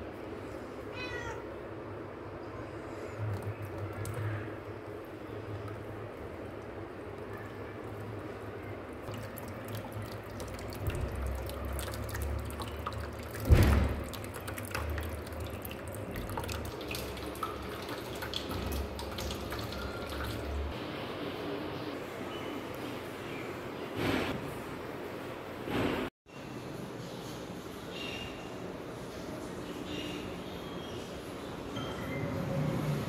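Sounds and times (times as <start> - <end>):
water dripping in steel sink: 3.2 - 4.4, 9.0 - 20.8.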